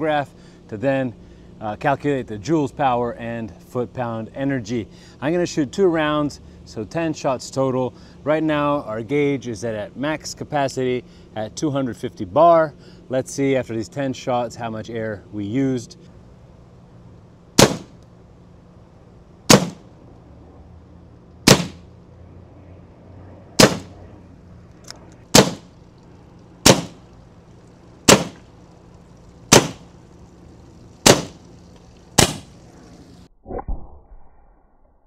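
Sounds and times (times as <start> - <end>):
air pistol shots: 17.6 - 18.0, 19.5 - 19.8, 21.4 - 21.8, 23.6 - 24.0, 25.3 - 25.7, 26.6 - 27.0, 28.0 - 28.4, 29.5 - 29.9, 31.0 - 31.5, 32.2 - 32.6.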